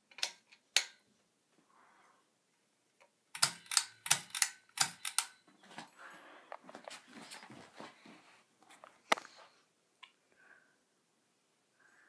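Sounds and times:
sharp clicks: 3.3 - 5.4.

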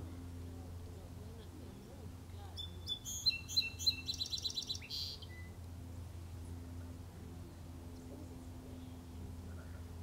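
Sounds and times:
songbird singing: 0.0 - 6.6
steady low hum: 0.0 - 10.0.

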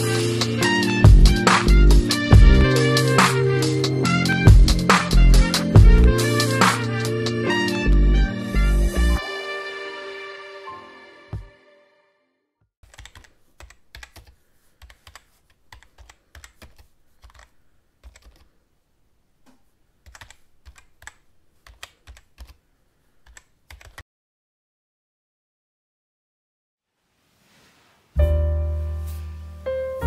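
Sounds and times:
keyboard typing clicks: 12.8 - 18.5, 20.0 - 22.6, 23.2 - 24.0.

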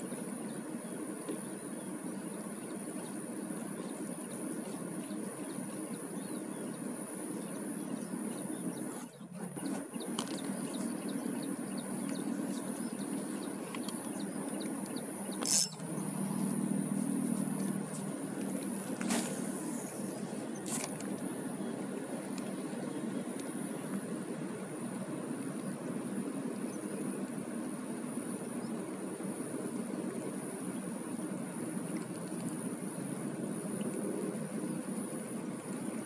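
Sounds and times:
thin high whine: 0.0 - 28.8
outdoor background noise: 0.0 - 36.0
sharp click: 15.4 - 15.8.

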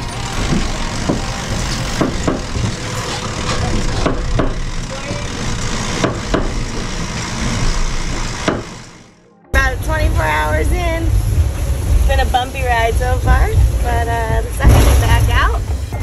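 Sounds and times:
knocks and clicks: 0.0 - 8.9
hull rumble and rush: 9.6 - 16.0.

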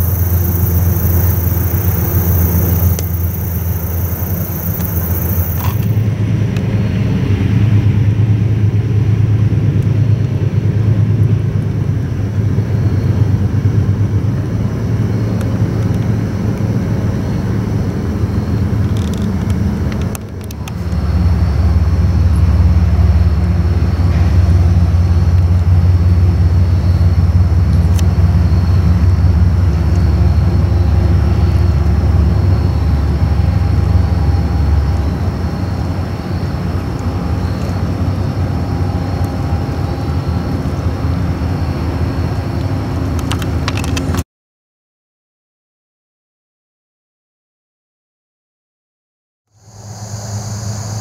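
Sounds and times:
faint thin whine: 0.0 - 6.0
passing train rumble: 0.0 - 44.2.

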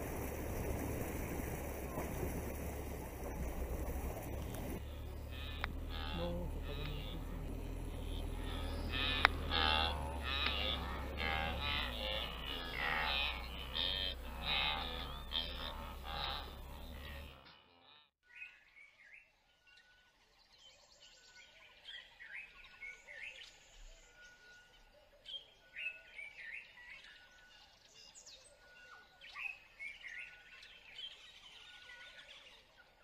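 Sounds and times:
repeated steady bird note: 0.0 - 18.1
faint natural ambience: 0.0 - 33.0
birds chirping and calling: 0.1 - 17.4.

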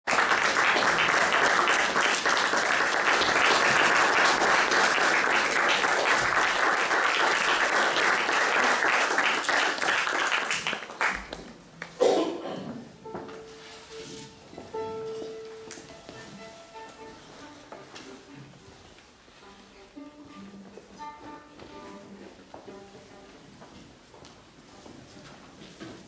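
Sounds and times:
audience applauding: 0.0 - 11.5.

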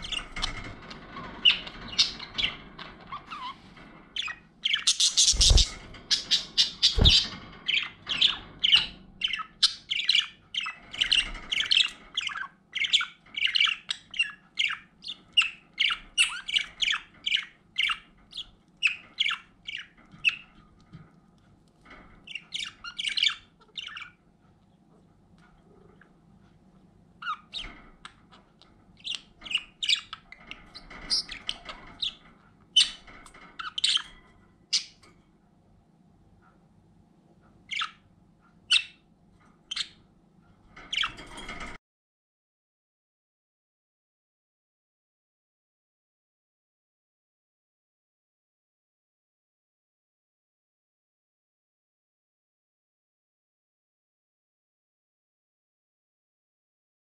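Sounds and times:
budgerigars chirping: 4.2 - 20.6, 22.3 - 24.2, 27.2 - 32.2, 37.7 - 38.0, 38.7 - 39.1.

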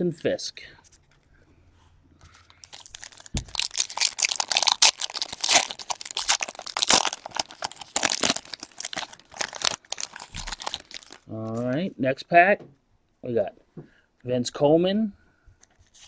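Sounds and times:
foil wrapper tearing and crinkling: 2.6 - 11.3.

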